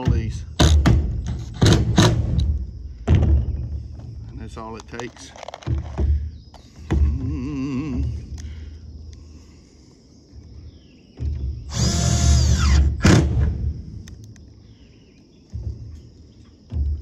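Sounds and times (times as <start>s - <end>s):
cordless driver motor whining: 11.7s - 13.0s.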